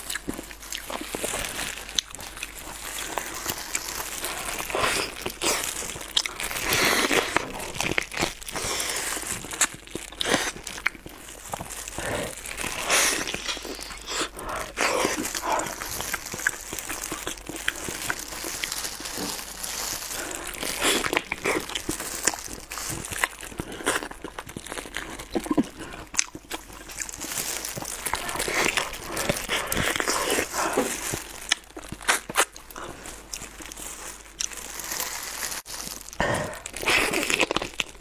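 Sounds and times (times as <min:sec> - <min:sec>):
plastic gloves crinkling: 0:00.0 - 0:38.0
chewing with wet mouth clicks: 0:25.2 - 0:30.4.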